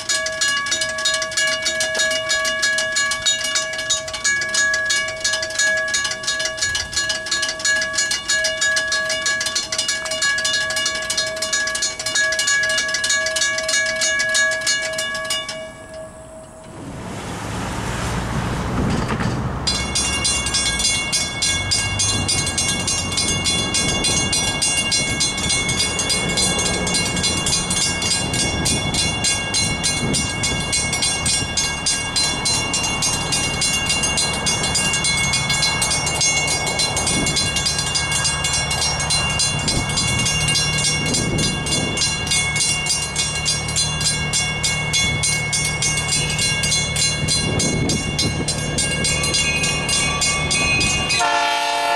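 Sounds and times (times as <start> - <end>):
railroad crossing bell ringing: 0.0 - 16.9, 17.7 - 51.9.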